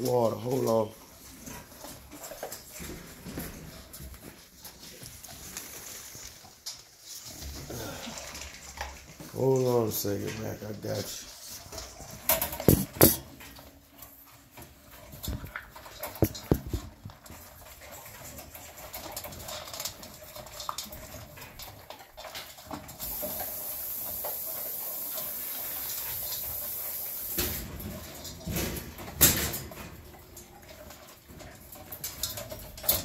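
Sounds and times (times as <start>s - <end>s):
puppies crunching kibble: 0.0s - 33.0s
steady hiss: 22.9s - 28.0s.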